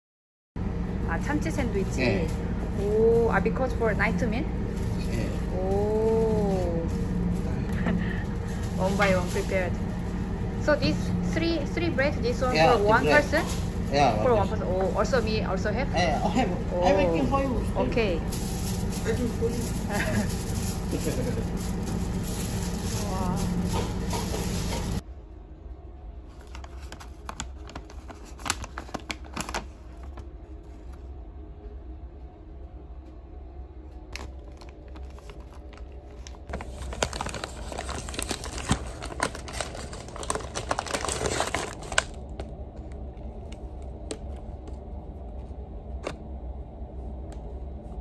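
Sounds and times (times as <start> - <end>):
low hum: 0.6 - 48.0
plastic wrapper crinkling: 18.2 - 25.0, 26.4 - 30.3, 34.1 - 42.5.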